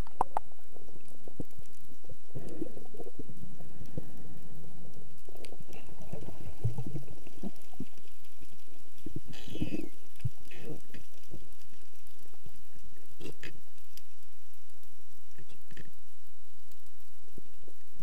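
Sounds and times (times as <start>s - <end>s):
underwater bubbling and gurgling: 0.0s - 18.0s
small clicks: 6.7s - 17.0s.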